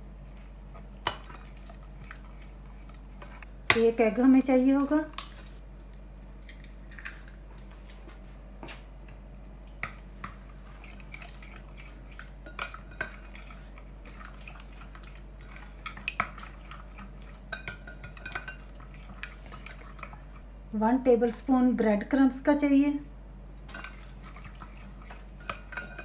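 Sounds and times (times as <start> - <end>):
fork scraping against bowl: 0.2 - 3.5, 10.2 - 20.4, 23.6 - 26.0.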